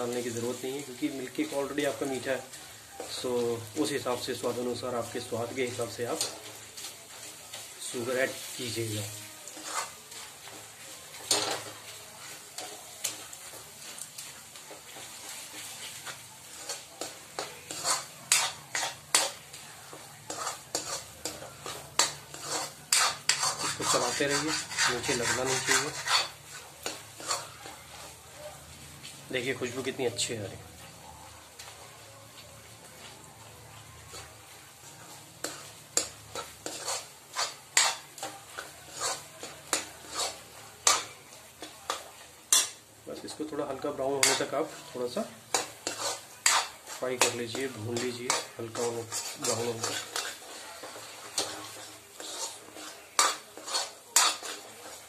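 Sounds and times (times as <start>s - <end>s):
metal spatula scraping pan: 0.0s - 28.3s, 34.0s - 55.0s
faint sizzle: 0.0s - 55.0s.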